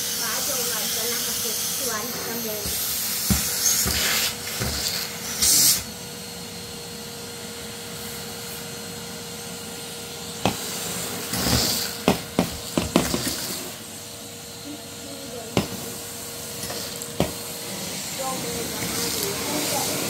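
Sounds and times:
vacuum cleaner humming: 0.0s - 20.0s
hose knocking and sucking debris: 0.2s - 5.9s, 10.4s - 14.0s, 15.5s - 20.0s.

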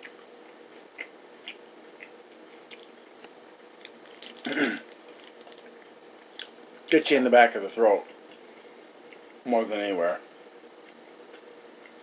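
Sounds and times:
person chewing: 0.0s - 5.7s
faint steady hum: 0.0s - 12.0s.

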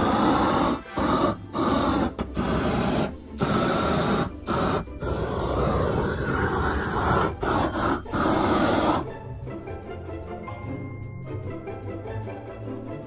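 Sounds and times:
propane torch roaring: 0.0s - 9.2s.

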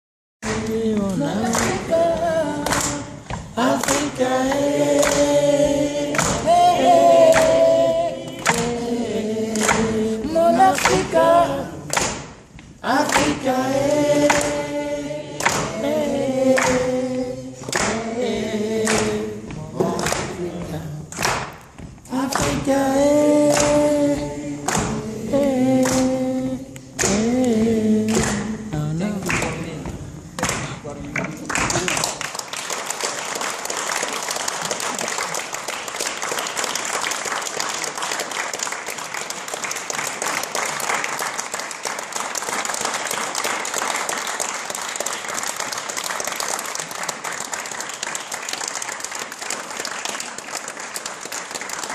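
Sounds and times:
audience singing in chorus: 0.4s - 21.5s, 22.1s - 30.4s
sharp claps: 2.6s - 6.6s, 7.2s - 7.7s, 8.3s - 8.8s, 9.5s - 9.9s, 11.9s - 13.4s, 15.4s - 15.8s, 17.6s - 18.2s, 18.8s - 19.2s, 19.8s - 20.4s, 21.1s - 22.7s, 23.4s - 23.9s, 24.6s - 25.0s, 25.8s - 26.2s, 27.0s - 28.6s, 29.2s - 29.6s, 30.4s - 51.9s.

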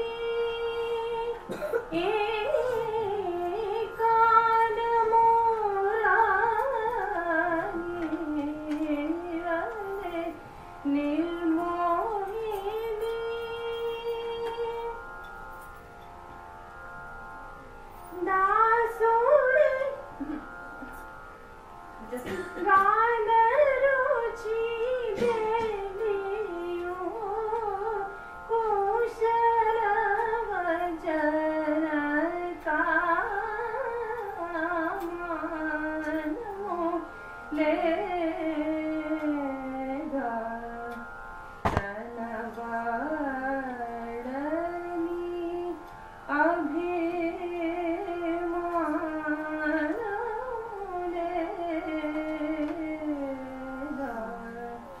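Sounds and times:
single click: 41.7s - 42.0s.

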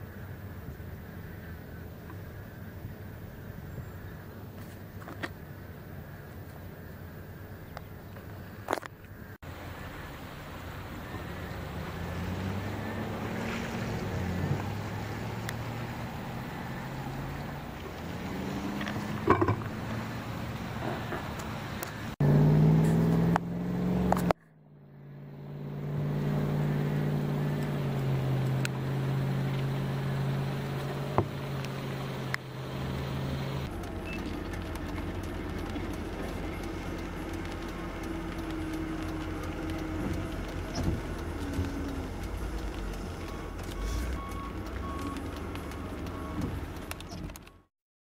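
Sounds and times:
road noise: 0.0s - 47.7s
vehicle engine running: 8.2s - 47.7s.

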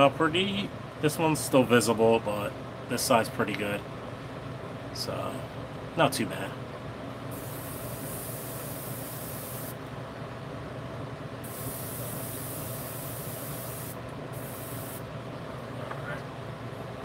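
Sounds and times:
steady low hum: 0.0s - 17.0s
airbrush spraying hiss: 7.3s - 9.8s, 11.4s - 15.1s.

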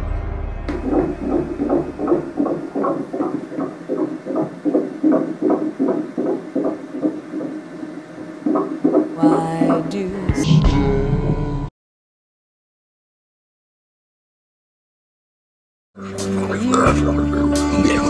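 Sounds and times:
fetal heartbeat doppler pulse: 0.7s - 10.6s.

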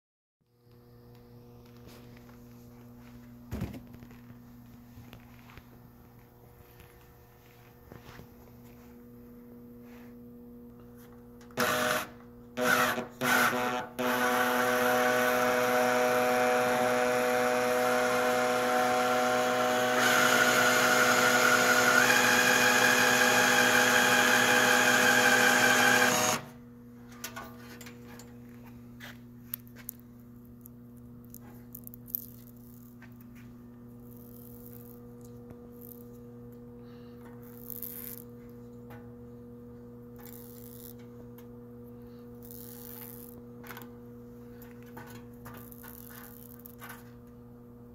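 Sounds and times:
cordless drill running: 11.6s - 26.5s.

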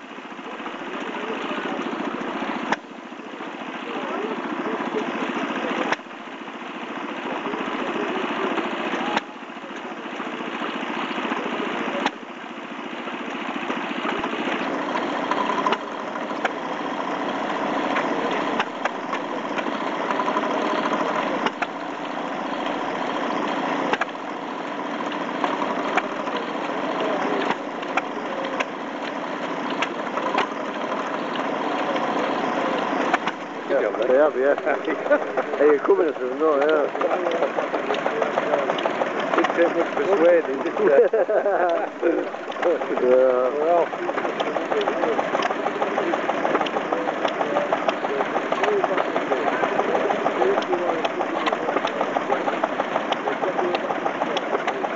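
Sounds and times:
stationary engine chugging: 0.0s - 54.9s.

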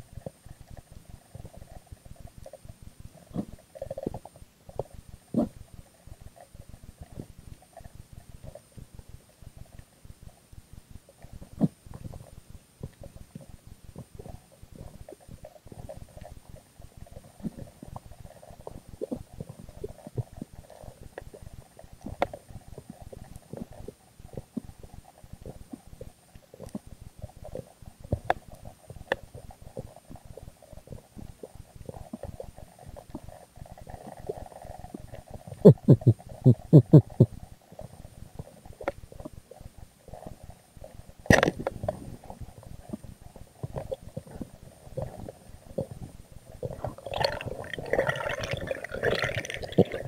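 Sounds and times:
muffled underwater rumbling and gurgling: 11.1s - 50.0s.

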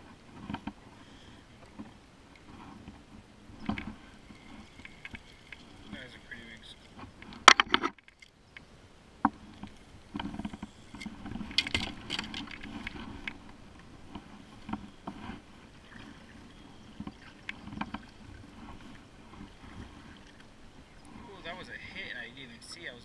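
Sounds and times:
paddle splashing in water: 0.0s - 8.3s, 9.3s - 21.7s
fishing gear clicks and knocks: 3.6s - 8.7s, 9.3s - 15.2s, 16.9s - 20.5s.

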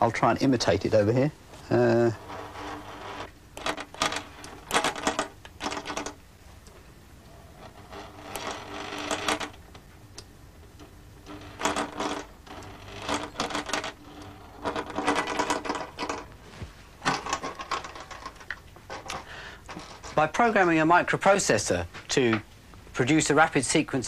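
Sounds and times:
sewing machine stitching: 2.1s - 6.2s, 7.6s - 9.6s, 11.2s - 16.2s.

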